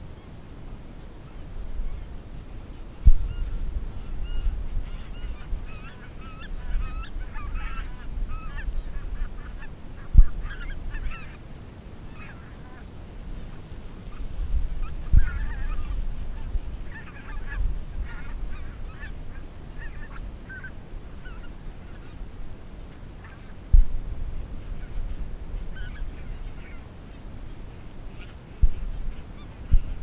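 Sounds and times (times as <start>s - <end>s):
geese honking: 1.3s - 11.4s, 12.1s - 22.2s, 22.9s - 23.6s, 24.6s - 27.0s
low thumps: 3.0s - 5.0s, 23.7s - 25.1s.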